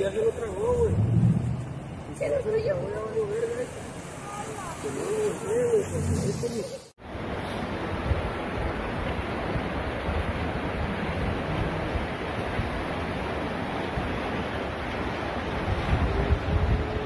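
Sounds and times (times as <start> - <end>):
floodwater rushing: 0.0 - 17.0
wind buffeting microphone: 0.6 - 3.1, 15.6 - 17.0.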